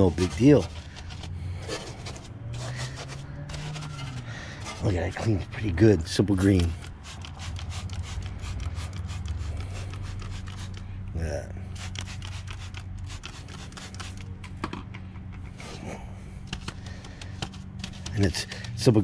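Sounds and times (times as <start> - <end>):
spray bottle spritzing: 6.6 - 10.9, 11.7 - 14.3.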